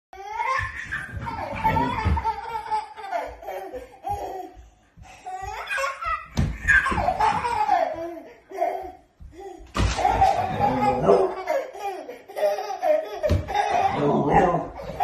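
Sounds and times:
toddler laughing and squealing: 0.2 - 4.6, 5.3 - 15.0
small feet thumping on wood: 3.8 - 8.0.

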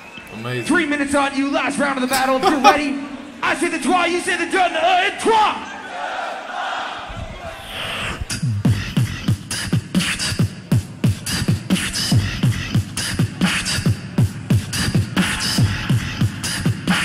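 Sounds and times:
beatboxed kick drum: 8.2 - 17.0
beatboxed clicks and hi-hats: 8.3 - 17.0.

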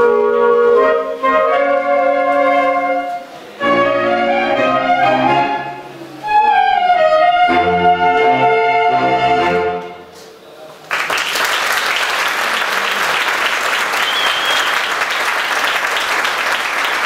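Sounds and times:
saxophone ensemble playing: 0.0 - 10.1.

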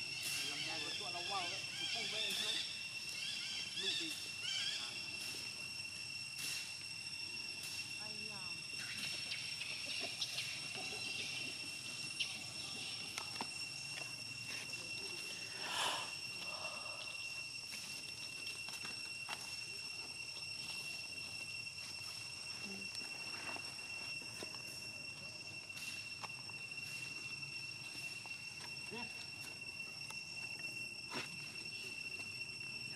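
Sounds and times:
insects droning: 0.0 - 32.9.

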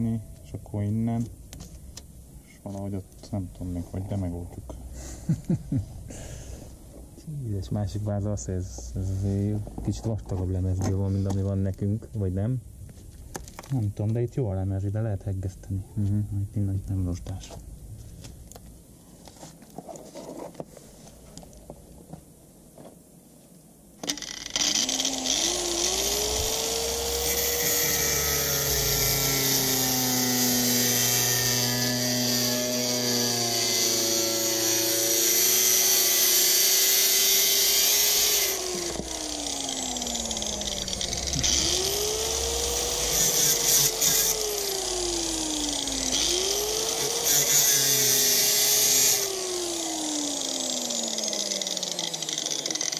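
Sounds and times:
angle grinder cutting sheet steel: 24.0 - 52.9.

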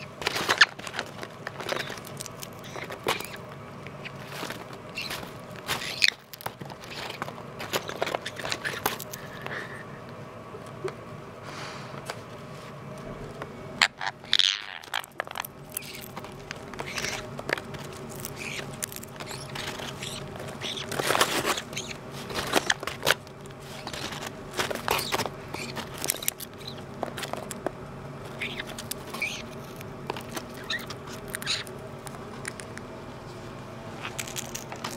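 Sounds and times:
paper bag rustling: 0.0 - 3.4, 4.1 - 9.4, 14.9 - 27.6.

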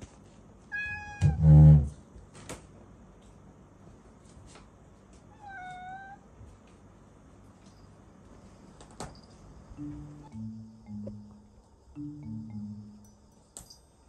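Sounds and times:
cat meowing: 0.7 - 1.6, 5.3 - 6.2.

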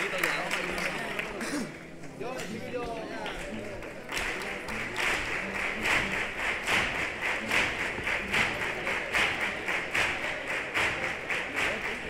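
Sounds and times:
audience clapping in unison: 0.0 - 12.0.

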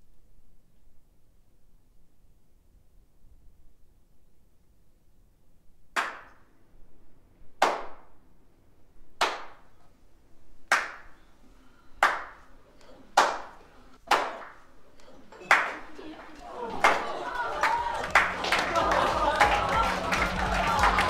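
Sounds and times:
hand claps in reverberant room: 6.0 - 6.5, 7.6 - 8.1, 9.2 - 9.7, 10.7 - 21.0.

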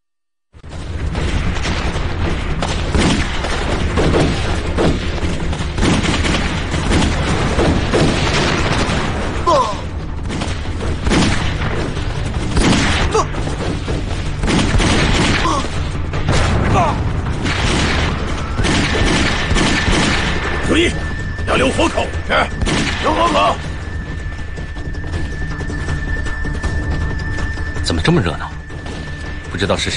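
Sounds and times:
gunshots: 0.6 - 24.3
booms: 0.6 - 24.4
low rumble: 0.6 - 29.9
people shouting: 22.3 - 23.6.

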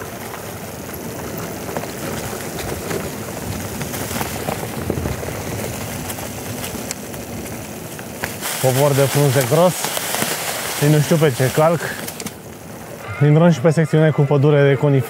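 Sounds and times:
tyres rolling over leaves: 0.0 - 15.0.

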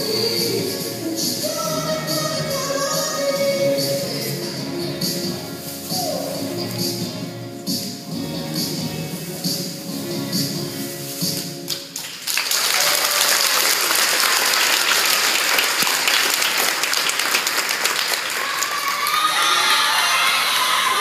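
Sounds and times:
dance music: 0.0 - 12.0
crowd applauding and cheering: 11.7 - 21.0
children shouting: 18.3 - 21.0.

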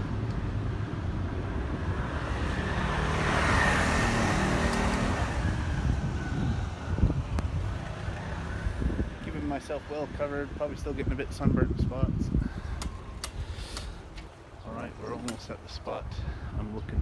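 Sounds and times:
motor scooter passing: 1.0 - 10.6.

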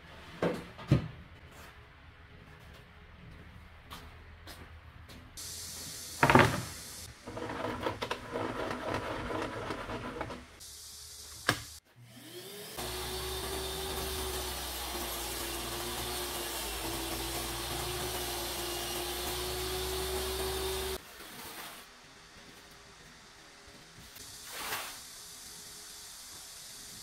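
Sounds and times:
wood board knocking down: 6.2 - 6.7
table saw whining: 6.2 - 21.8.

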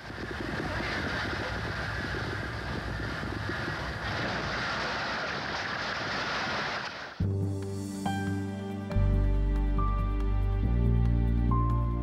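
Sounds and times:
deep earthquake rumble: 0.0 - 7.8.

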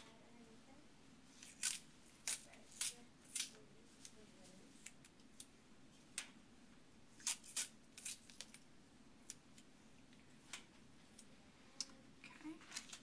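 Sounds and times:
tape snipping and ripping: 1.4 - 3.6, 7.2 - 8.6.

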